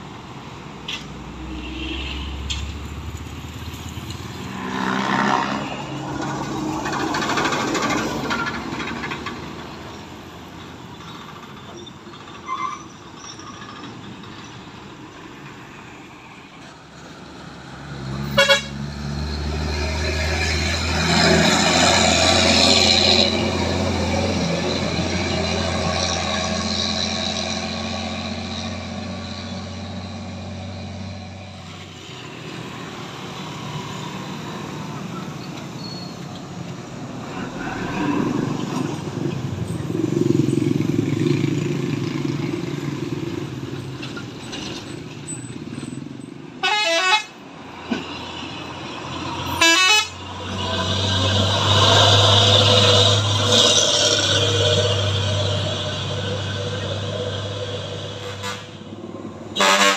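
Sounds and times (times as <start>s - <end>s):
motorcycle engines: 0.7s - 12.4s, 16.5s - 59.9s
truck diesel engine passing: 2.4s - 10.9s, 14.2s - 59.9s
vehicle horn toot: 18.4s - 18.8s, 46.6s - 47.3s, 49.6s - 50.2s, 59.6s - 59.9s.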